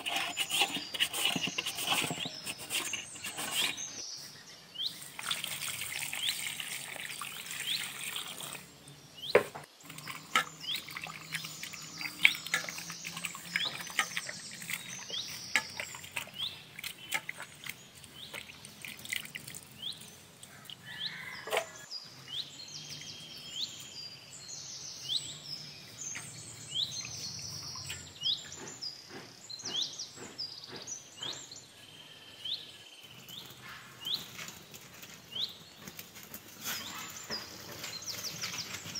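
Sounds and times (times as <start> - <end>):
small birds chirping: 0.0 - 38.9
water drips and splashes: 5.1 - 8.7, 9.8 - 20.9
water pouring over potatoes: 5.1 - 8.7, 18.0 - 20.1.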